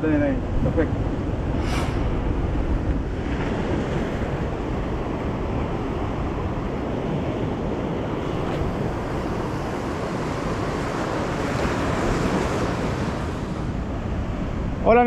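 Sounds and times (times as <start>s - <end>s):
ocean surf washing on shore: 0.0s - 15.0s
wind rumbling on microphone: 0.0s - 15.0s.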